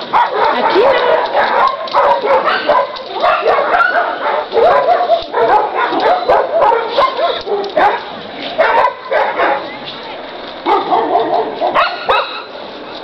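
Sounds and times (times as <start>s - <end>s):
dog yelping and whining: 0.5s - 8.0s.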